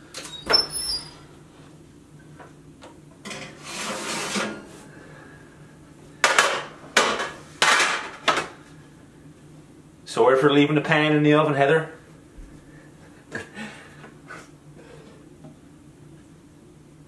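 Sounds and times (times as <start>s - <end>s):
metal pan scraping on wire rack: 3.3s - 4.7s.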